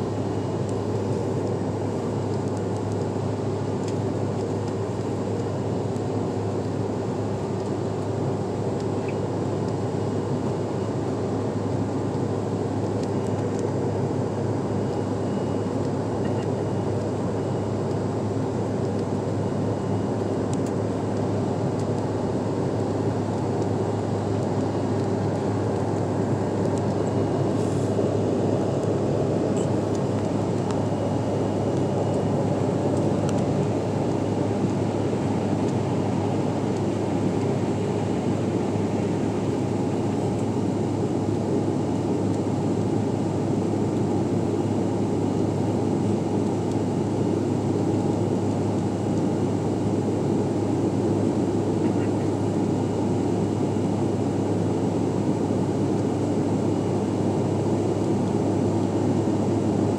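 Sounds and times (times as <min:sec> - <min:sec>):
jet engines humming: 0:00.0 - 0:59.9
rush of air in cabin: 0:23.9 - 0:54.6.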